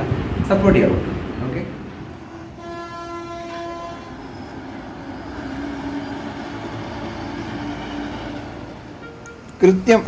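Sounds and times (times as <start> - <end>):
steady background rumble: 0.0 - 2.6
vehicle horn blaring: 2.4 - 4.3.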